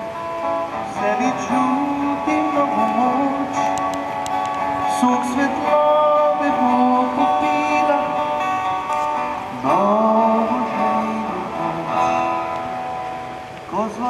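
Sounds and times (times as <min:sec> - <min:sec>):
acoustic guitar: 0:00.0 - 0:14.0
man singing: 0:00.8 - 0:03.9, 0:04.8 - 0:08.5, 0:09.5 - 0:12.3, 0:13.7 - 0:14.0.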